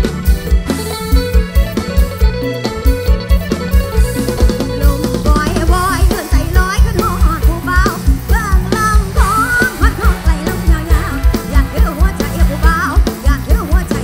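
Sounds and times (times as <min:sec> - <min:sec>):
live band music: 0:00.0 - 0:14.0
woman singing: 0:04.7 - 0:14.0.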